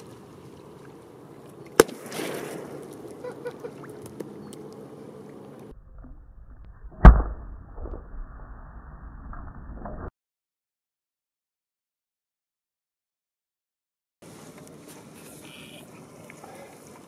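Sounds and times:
firecracker bangs: 1.8 - 2.9.

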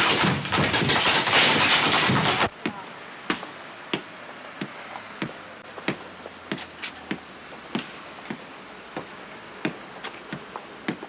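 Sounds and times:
loud clatter: 0.0 - 2.5.

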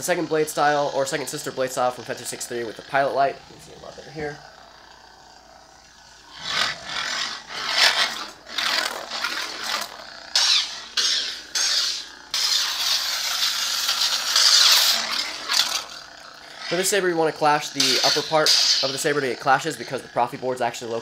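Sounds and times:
lightsaber swing hiss: 5.9 - 16.0, 16.6 - 20.5.

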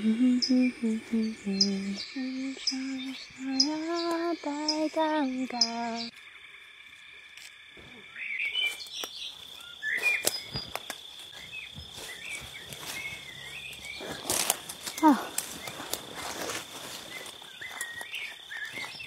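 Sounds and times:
bird chirps: 0.0 - 6.1, 7.8 - 19.0
insect buzzing: 0.0 - 19.0
rustles in dry leaves: 8.4 - 19.0.

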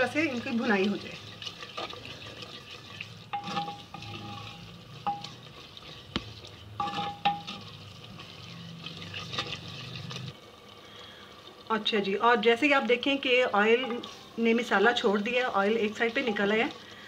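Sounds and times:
spoon stirring and scraping in pot: 0.0 - 10.4, 13.6 - 17.0
food frying in oil: 0.0 - 17.0
spoon knocking against clay pot: 6.1 - 7.6.

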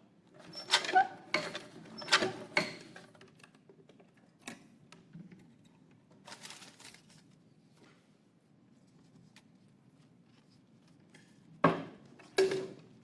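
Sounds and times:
paper rustling: 6.2 - 7.4.

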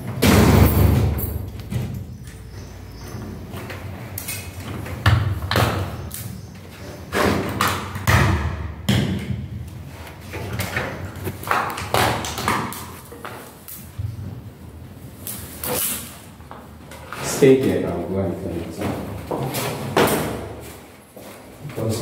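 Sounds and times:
thumps and knocks on ceiling: 0.0 - 2.1, 7.1 - 14.3.

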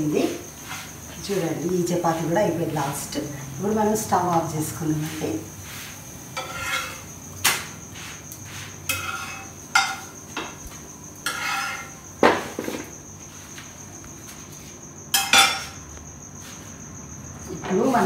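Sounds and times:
metal spatula clinking and scraping: 6.4 - 7.6, 8.9 - 10.2, 11.2 - 12.0, 15.2 - 15.8.

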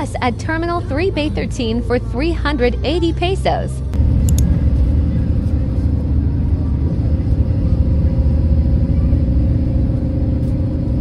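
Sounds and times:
bus rumbling from inside: 0.0 - 11.0
faint steady whine: 3.8 - 11.0.

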